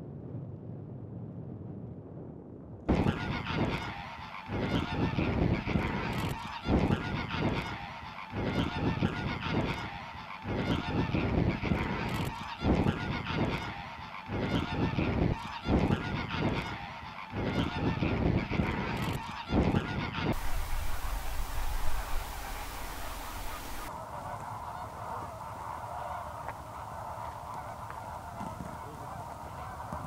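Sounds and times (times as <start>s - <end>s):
flamingos honking: 20.1s - 30.0s.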